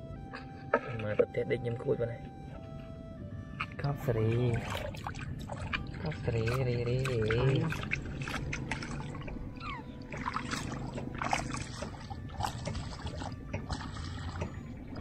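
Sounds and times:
low steady rumble: 0.0s - 15.0s
water splashing and trickling: 3.6s - 15.0s.

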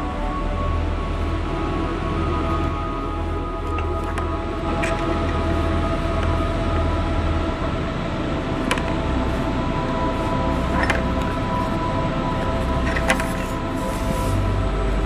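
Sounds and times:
steady hum of held tones: 0.0s - 15.0s.

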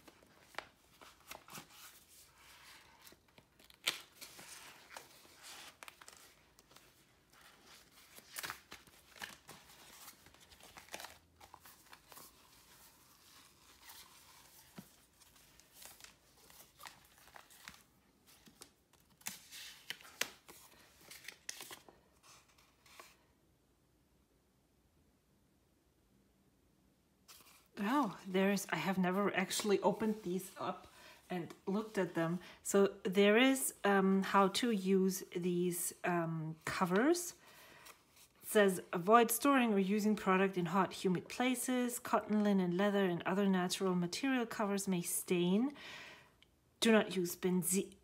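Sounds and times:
paper leaflet handled: 0.0s - 23.2s
plastic cover rustling and crinkling: 0.0s - 23.2s.

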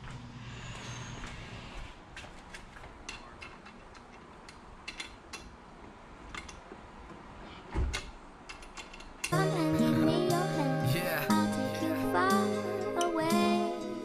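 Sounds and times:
allen key clicking on bolt: 7.9s - 9.4s
music: 9.3s - 14.0s.

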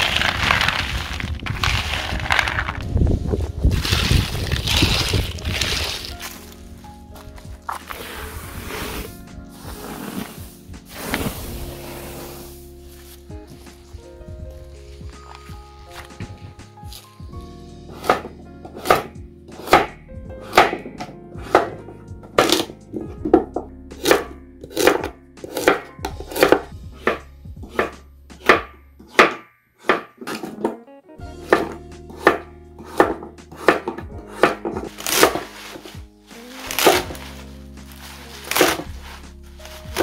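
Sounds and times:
knife chopping vegetables on board: 17.9s - 30.8s, 31.4s - 35.8s, 38.5s - 38.9s.

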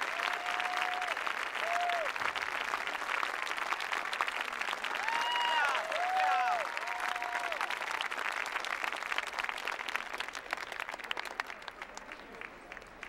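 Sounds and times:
crowd applauding: 0.0s - 13.0s
high cheering calls: 4.9s - 7.7s.

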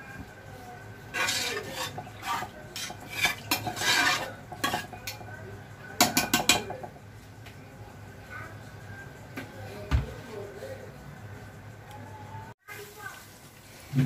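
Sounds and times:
spices frying in oil: 0.0s - 8.8s, 12.6s - 14.0s
metal spoon scraping pot: 1.0s - 5.3s.

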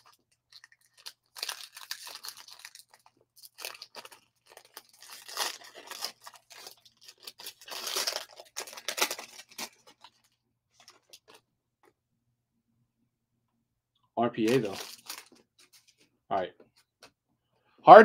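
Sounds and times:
foil wrapper crinkling and tearing: 0.0s - 11.4s, 14.4s - 15.9s.

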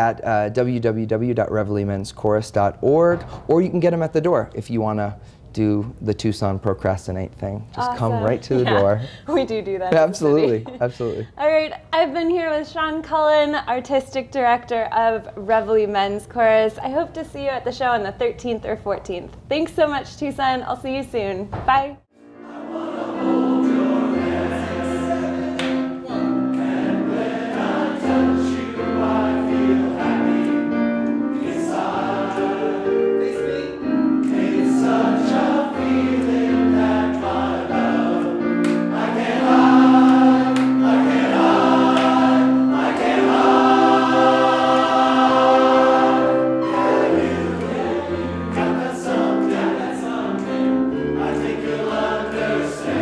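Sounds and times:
piano accompaniment: 22.1s - 53.0s
men's chorus singing in harmony: 22.2s - 53.0s.

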